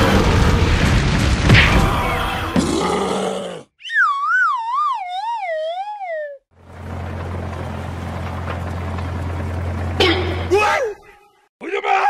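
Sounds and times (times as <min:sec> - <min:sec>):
wobbling tone sliding down: 0:03.8 - 0:06.4.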